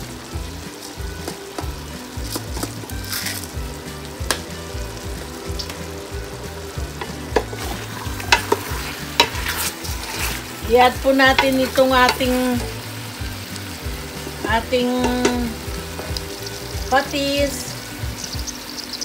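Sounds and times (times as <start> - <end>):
chicken sizzling in pot: 0.0 - 19.0
wooden spoon scraping pot: 7.0 - 10.6.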